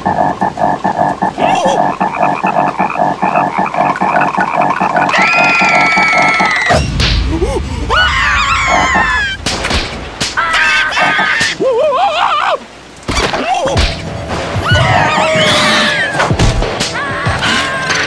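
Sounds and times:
sharp hit effects: 0:06.4 - 0:11.0
squeaky cartoon cries: 0:14.7 - 0:16.2.

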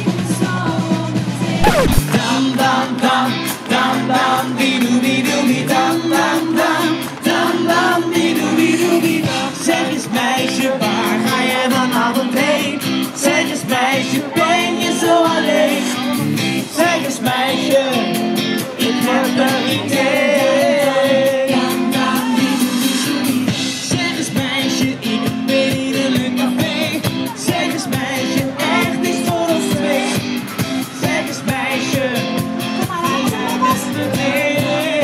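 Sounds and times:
pop band playing: 0:01.6 - 0:02.4, 0:11.6 - 0:35.0.

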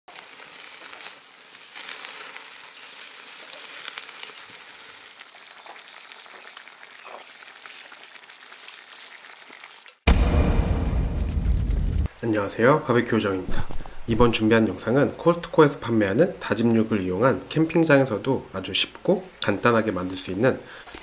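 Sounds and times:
meatballs sizzling on a grill: 0:00.1 - 0:10.0.

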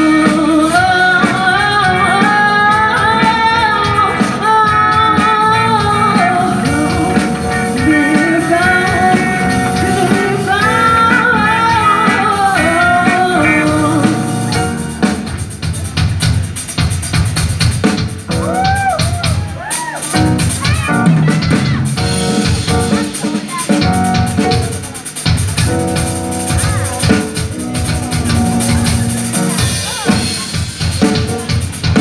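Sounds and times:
woman singing: 0:00.0 - 0:15.1
rock band playing: 0:00.0 - 0:32.0.

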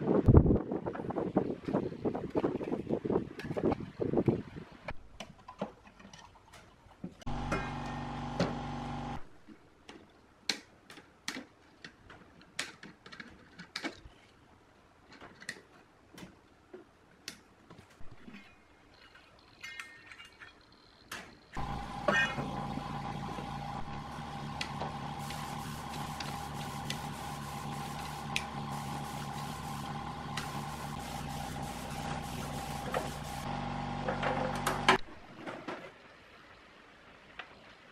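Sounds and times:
steady machine hum: 0:07.3 - 0:09.2, 0:21.6 - 0:35.0.

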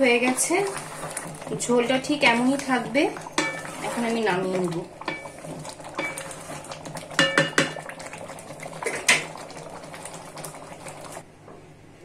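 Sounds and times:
spatula stirring thick curry: 0:00.1 - 0:07.7
spatula knocking against pan: 0:03.4 - 0:03.6, 0:05.1 - 0:05.3, 0:07.2 - 0:07.8.

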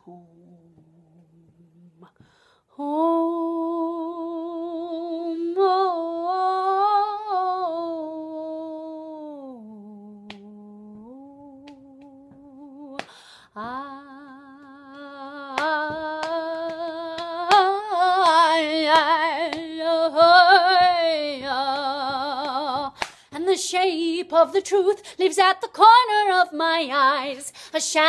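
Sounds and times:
woman singing unaccompanied: 0:00.0 - 0:02.2, 0:02.8 - 0:28.0.

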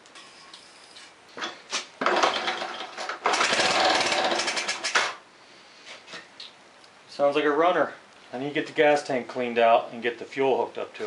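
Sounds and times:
motorcycle engine running: 0:02.1 - 0:04.9.

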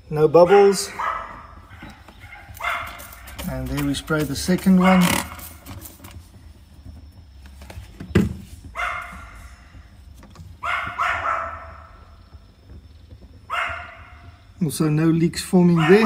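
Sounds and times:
dog barking: 0:00.4 - 0:03.8, 0:04.7 - 0:05.6, 0:08.8 - 0:09.6, 0:10.6 - 0:12.1, 0:13.5 - 0:14.4, 0:15.7 - 0:16.0.

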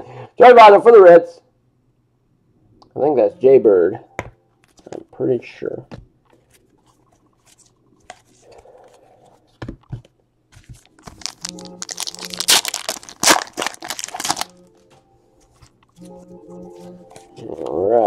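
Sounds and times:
cards tapping and knocking: 0:09.5 - 0:11.2
plastic foil wrapper tearing: 0:10.9 - 0:14.6.

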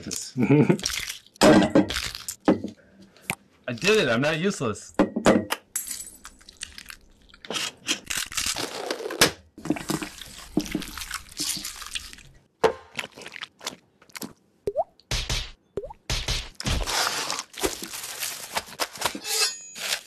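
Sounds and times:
wet squishy mashing: 0:00.8 - 0:02.4, 0:09.6 - 0:14.4.

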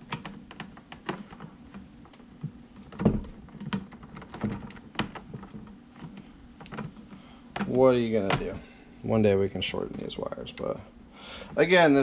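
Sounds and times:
cables clicking and tapping on metal: 0:00.0 - 0:12.0.

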